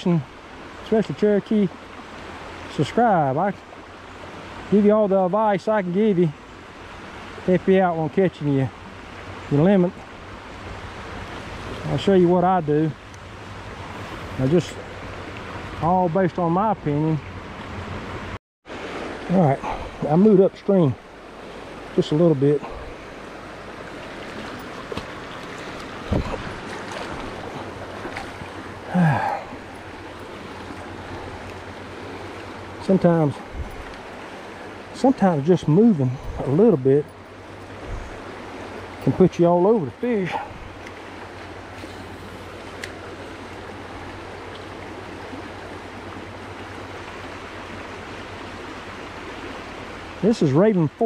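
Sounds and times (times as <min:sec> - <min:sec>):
river rushing over rocks: 0:18.0 - 0:51.0
low thump: 0:26.1 - 0:26.6.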